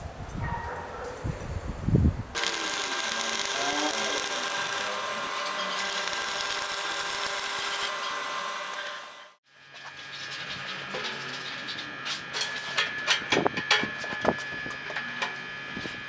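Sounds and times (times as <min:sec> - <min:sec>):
welding arc crackling: 0:02.3 - 0:10.6.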